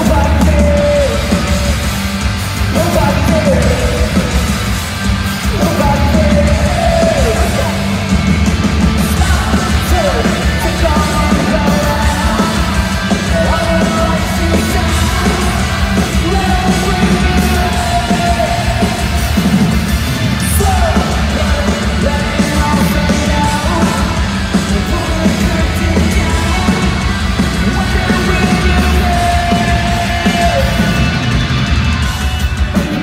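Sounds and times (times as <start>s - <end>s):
live rock band playing: 0.0s - 33.0s.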